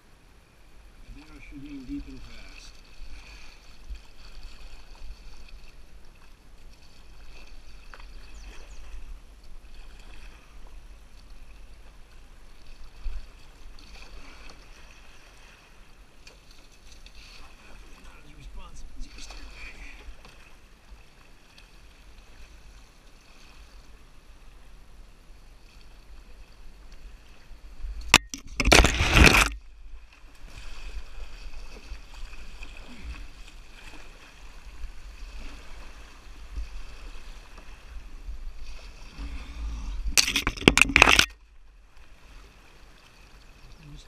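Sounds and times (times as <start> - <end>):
water rushing along canoe hull: 0.0 - 44.0.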